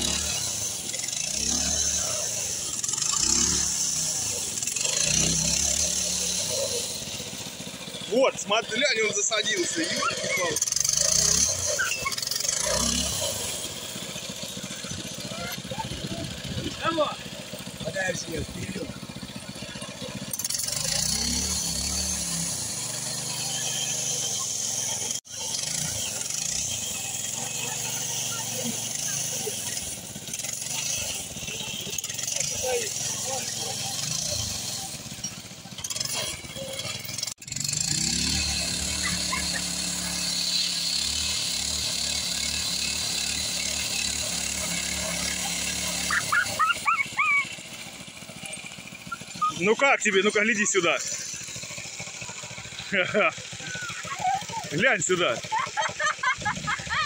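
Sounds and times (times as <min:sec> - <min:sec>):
single-cylinder engine revving: 0:00.0 - 0:57.0
small dog yapping: 0:09.8 - 0:10.6, 0:11.6 - 0:12.3, 0:46.0 - 0:47.6, 0:49.1 - 0:49.6.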